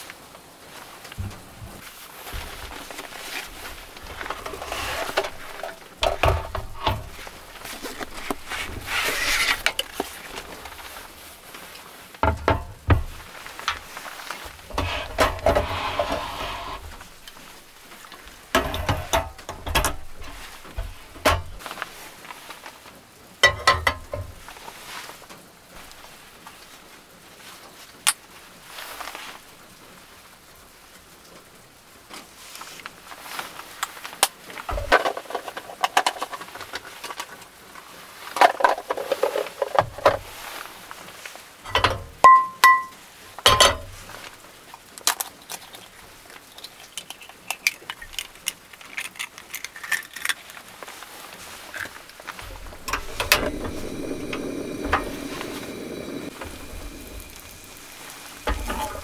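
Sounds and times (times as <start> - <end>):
soft clatter of cooking gear: 0.0 - 29.4, 32.1 - 59.0
frying pan and stove knocking: 12.2 - 13.2, 18.6 - 21.6, 23.4 - 24.4.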